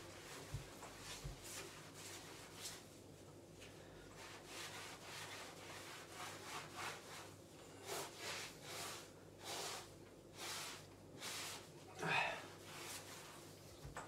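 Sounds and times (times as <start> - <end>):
wet sponge swishing on wall: 0.0 - 11.9, 12.5 - 13.9.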